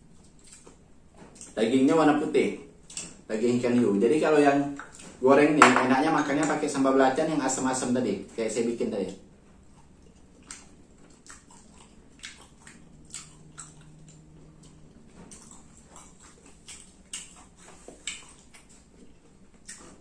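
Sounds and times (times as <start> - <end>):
person chewing food: 0.0 - 1.6, 9.6 - 20.0
mouth clicks and smacks: 2.8 - 3.2, 9.7 - 20.0.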